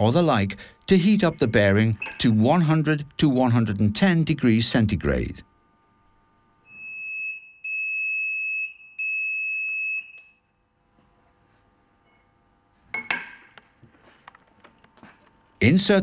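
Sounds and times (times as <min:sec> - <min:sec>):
alarm beeping: 0:01.0 - 0:02.9.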